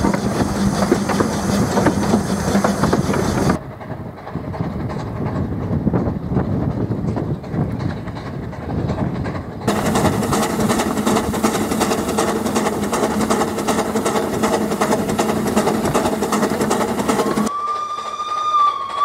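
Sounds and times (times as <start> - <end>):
steam locomotive chatter: 0.0 - 19.0
train passing: 0.0 - 19.0
steam whistle: 17.2 - 19.0.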